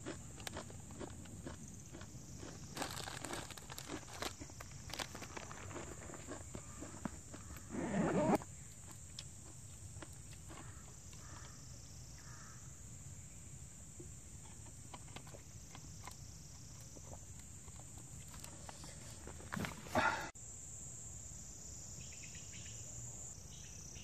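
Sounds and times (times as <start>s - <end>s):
insect chorus buzzing: 0.0s - 24.0s
plastic water bottle rustling: 2.8s - 6.0s.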